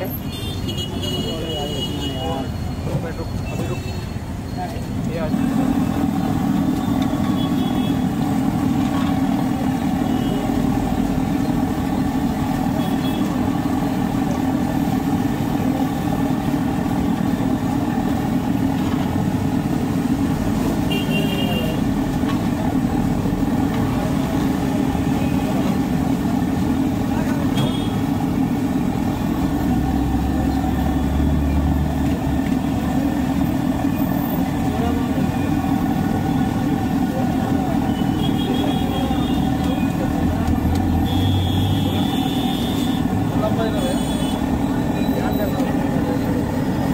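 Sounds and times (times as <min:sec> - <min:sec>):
oil frying hiss: 0:05.4 - 0:41.1.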